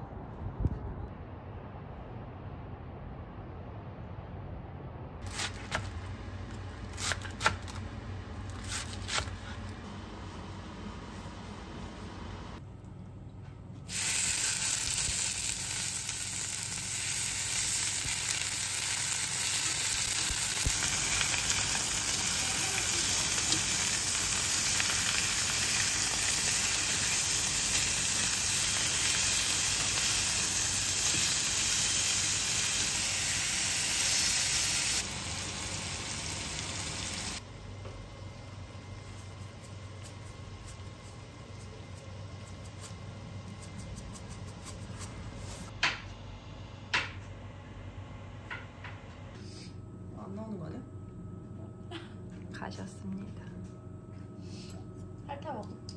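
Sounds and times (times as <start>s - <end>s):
pork sizzling in a skillet: 13.9s - 37.4s.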